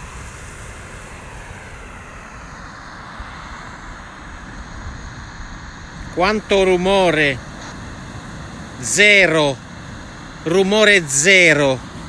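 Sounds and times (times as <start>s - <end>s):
waves breaking on beach: 6.1s - 12.0s.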